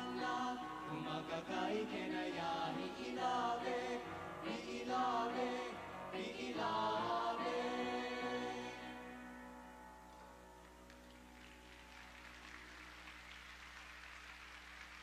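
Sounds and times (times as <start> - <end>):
choir singing: 0.0 - 9.4.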